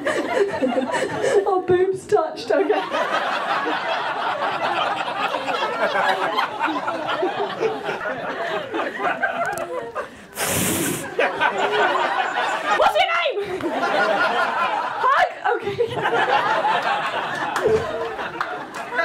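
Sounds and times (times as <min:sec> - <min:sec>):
audience laughing: 0:00.0 - 0:01.5, 0:02.6 - 0:19.0
loud hiss: 0:10.4 - 0:11.2.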